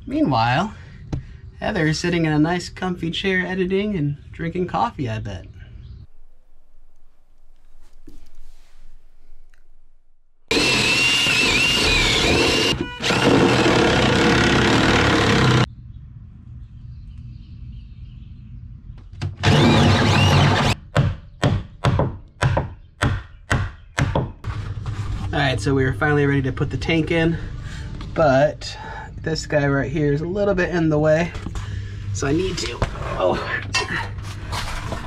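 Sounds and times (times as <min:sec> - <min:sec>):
cordless drill boring wood: 0:10.5 - 0:15.7, 0:19.4 - 0:20.8.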